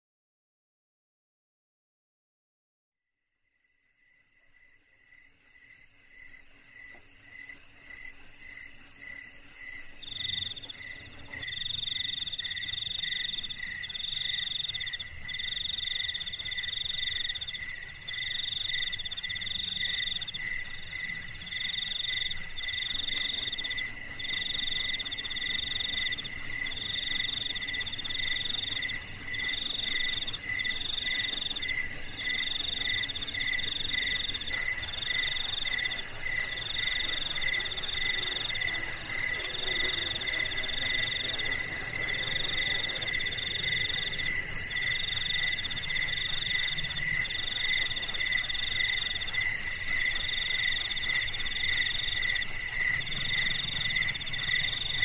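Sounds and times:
low repeating cricket chirp: 0:03.0 - 0:55.0
lower broken cricket trill: 0:03.5 - 0:55.0
fast high cricket trill: 0:08.5 - 0:55.0.

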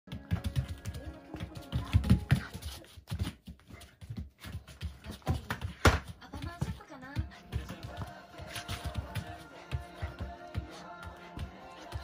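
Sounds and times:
music: 0:00.1 - 0:02.8, 0:06.9 - 0:12.0.

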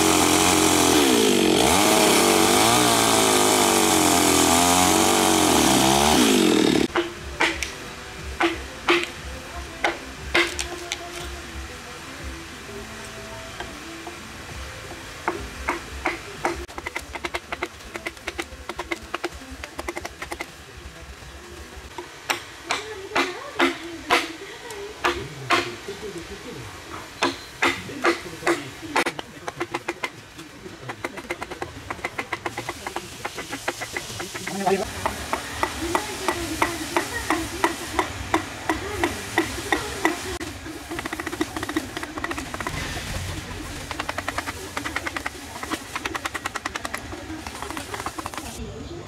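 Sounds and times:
hatchet chopping wood: 0:00.0 - 0:07.7, 0:08.4 - 0:09.2, 0:09.8 - 0:11.0, 0:15.2 - 0:20.5, 0:21.9 - 0:24.3, 0:25.0 - 0:25.8, 0:27.2 - 0:30.2, 0:30.8 - 0:43.2, 0:43.8 - 0:48.6
wooden mallet striking chisel: 0:08.4 - 0:09.2, 0:15.2 - 0:20.5, 0:21.9 - 0:24.3, 0:27.2 - 0:30.1, 0:30.9 - 0:40.2, 0:41.0 - 0:43.2, 0:43.8 - 0:48.6.

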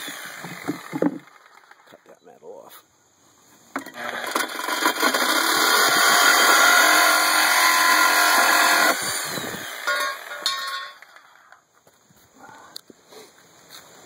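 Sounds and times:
reciprocating saw cutting metal: 0:03.8 - 0:11.1.

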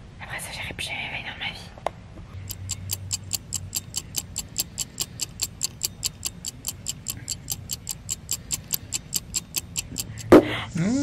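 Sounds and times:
clock ticking quickly: 0:02.4 - 0:10.4.

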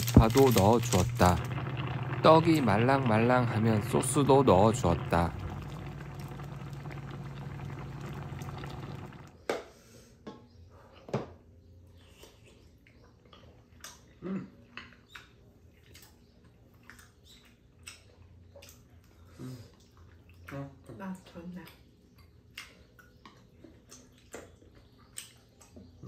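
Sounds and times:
quiet eating sounds: 0:00.0 - 0:09.3, 0:11.7 - 0:26.0
sauce simmering and bubbling: 0:00.0 - 0:09.4.

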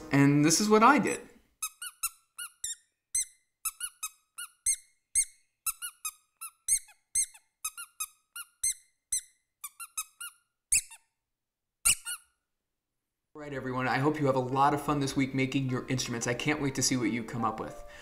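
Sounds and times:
rubber duck squeaks: 0:01.6 - 0:11.1, 0:11.8 - 0:12.4.

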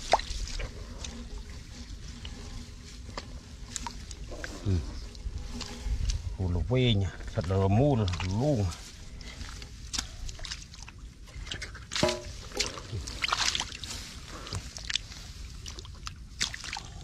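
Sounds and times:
hands squelching in mud: 0:00.0 - 0:01.2, 0:08.0 - 0:17.0
water splashing: 0:00.0 - 0:06.2, 0:07.4 - 0:17.0.

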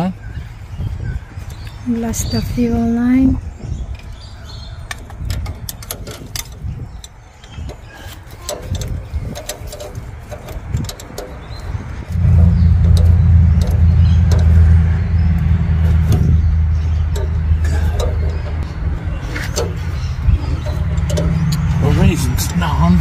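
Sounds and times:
metallic clicks of tools on engine: 0:01.4 - 0:02.4, 0:03.8 - 0:23.0
diesel engine cranking by starter: 0:08.6 - 0:23.0.

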